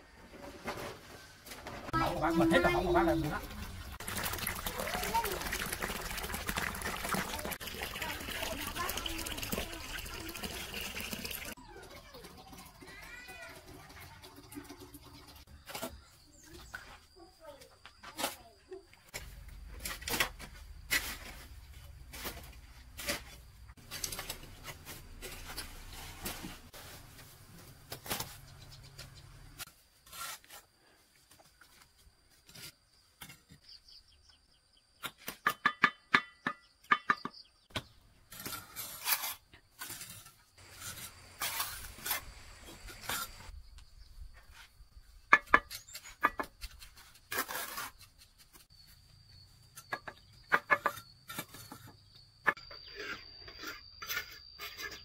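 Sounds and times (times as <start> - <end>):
trowel scraping mortar: 30.0 - 30.7, 38.3 - 43.5, 45.3 - 48.8, 49.7 - 55.0.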